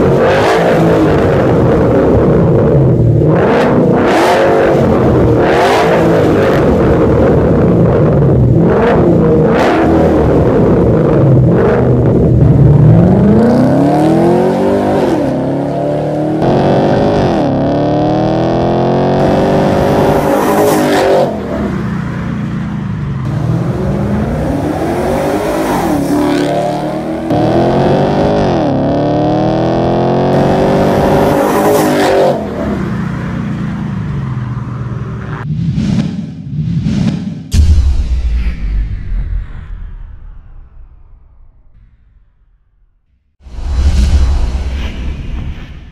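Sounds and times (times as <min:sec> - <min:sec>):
car engine accelerating with upshifts: 0:00.0 - 0:22.0, 0:23.0 - 0:33.4.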